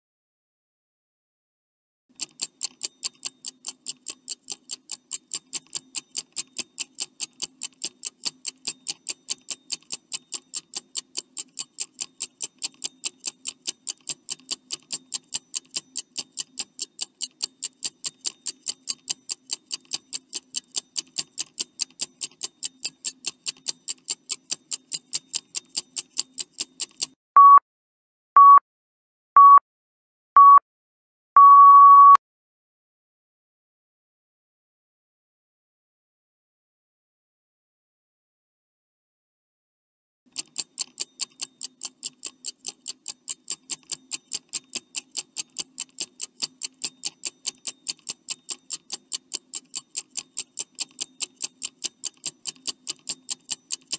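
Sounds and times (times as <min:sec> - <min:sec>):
clock ticking: 0:02.1 - 0:27.2, 0:40.3 - 0:53.9
short high beeps: 0:27.4 - 0:27.6, 0:28.4 - 0:28.6, 0:29.4 - 0:29.6, 0:30.4 - 0:30.6, 0:31.4 - 0:32.2.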